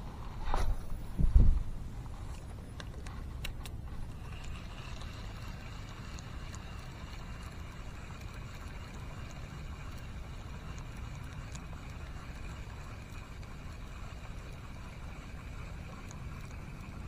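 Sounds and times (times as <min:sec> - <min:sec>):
low wind rumble on microphone: 0:00.0 - 0:04.7
fishing reel whirring: 0:00.0 - 0:17.0
faint ticks: 0:02.0 - 0:17.0
sharp clicks of fishing reel: 0:02.3 - 0:17.0.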